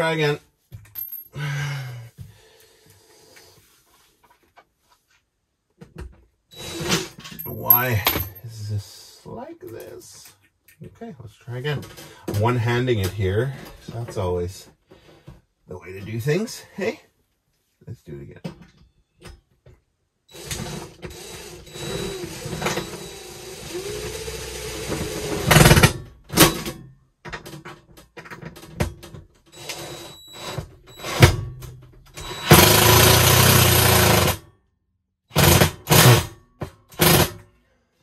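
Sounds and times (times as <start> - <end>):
cordless drill whirring: 6.6 - 7.0, 20.3 - 25.8, 29.6 - 31.2, 32.2 - 34.4.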